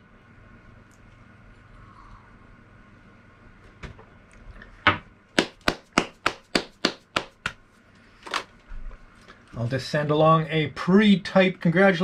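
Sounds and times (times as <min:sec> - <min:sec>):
person clapping hands: 0:05.4 - 0:07.6.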